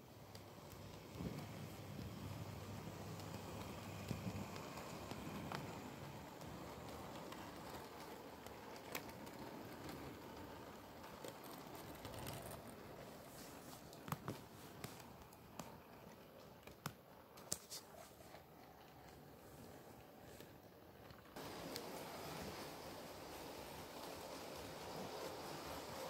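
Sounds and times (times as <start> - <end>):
model train rolling on track: 0.0 - 26.0
wheels clicking over rail joints: 0.2 - 17.0.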